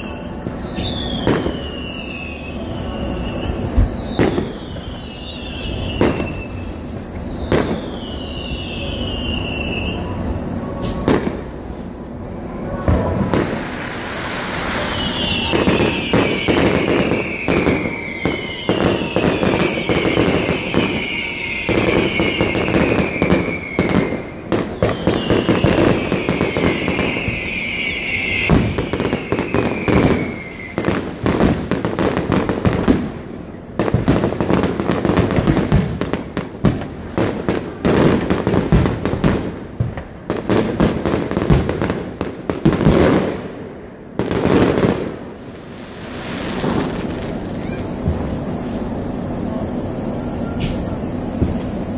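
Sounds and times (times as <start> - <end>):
whistles sliding down in pitch: 0.0 - 11.0, 12.4 - 31.2
fireworks bangs and crackle: 0.0 - 51.9.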